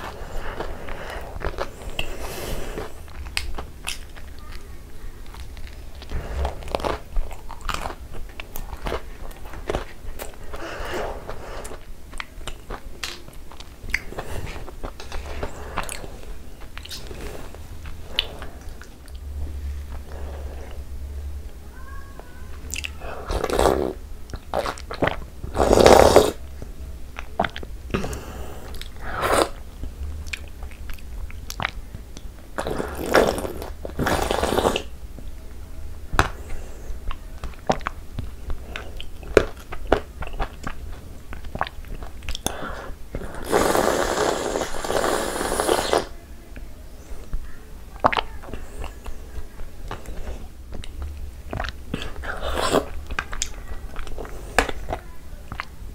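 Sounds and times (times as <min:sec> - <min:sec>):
wet chewing: 0:00.0 - 0:20.8, 0:22.6 - 0:34.9, 0:36.1 - 0:46.2, 0:47.2 - 0:55.9
slurping from a bowl: 0:23.1 - 0:24.0, 0:24.6 - 0:26.4, 0:28.0 - 0:29.6, 0:32.6 - 0:34.9, 0:42.3 - 0:46.2, 0:51.6 - 0:53.2.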